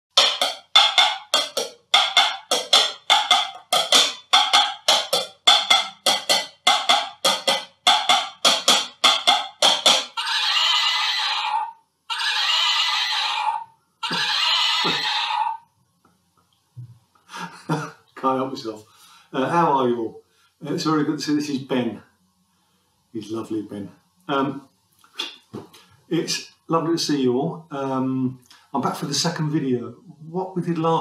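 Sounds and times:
horse whinnies: 10.1 - 15.6.

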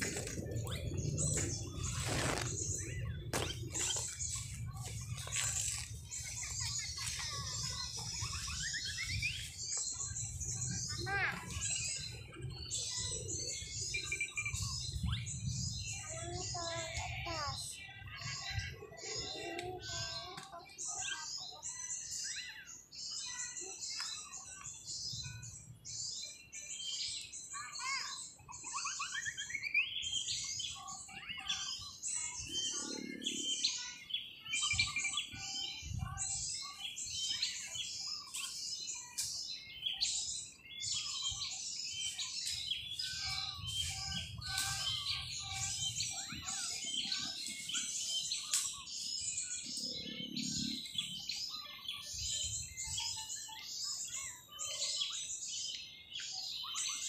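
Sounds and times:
dull low bumps: 0.0 - 5.2
small birds twittering: 0.0 - 57.0.

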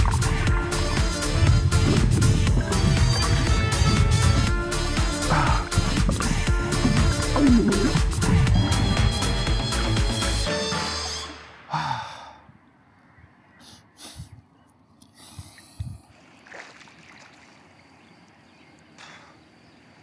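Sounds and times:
water sloshing and splashing: 0.0 - 0.6, 5.6 - 8.6, 16.0 - 18.5
swimmer breathing and gasping: 5.1 - 8.8, 15.0 - 16.1, 19.0 - 19.5
faint lakeside hush: 12.9 - 20.0.

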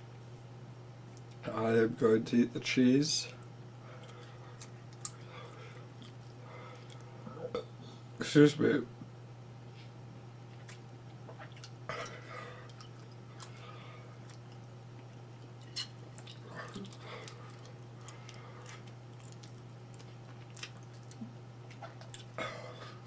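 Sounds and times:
steady low hum: 0.0 - 23.0
person chewing: 3.4 - 7.6, 10.5 - 23.0.

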